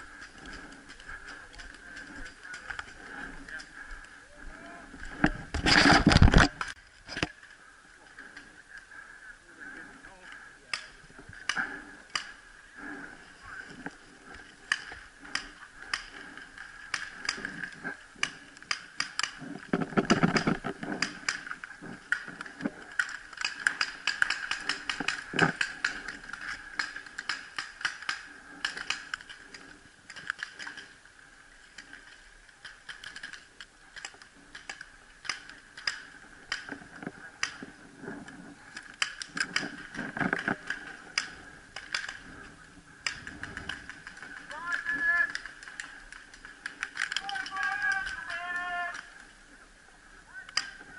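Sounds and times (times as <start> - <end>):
paintball pistol mechanical clicks: 18.2 - 30.9, 32.6 - 36.8, 38.8 - 42.3, 43.0 - 44.5, 50.5 - 50.8.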